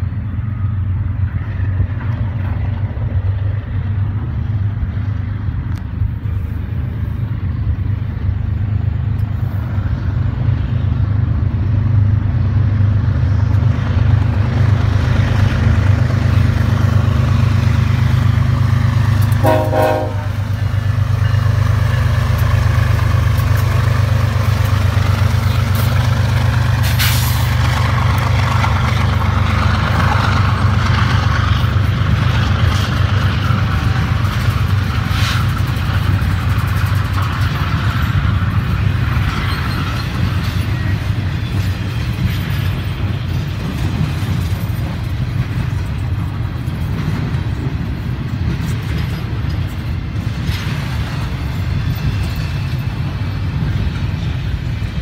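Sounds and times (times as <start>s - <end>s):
diesel locomotive engine rumble: 0.0s - 55.0s
train wheel and rail noise: 0.0s - 55.0s
train horn toot: 19.4s - 20.6s.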